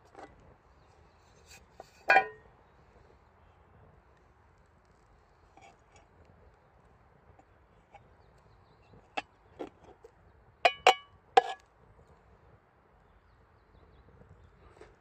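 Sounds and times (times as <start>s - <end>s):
metal cookpot clinking: 2.1s - 2.4s, 10.7s - 11.6s.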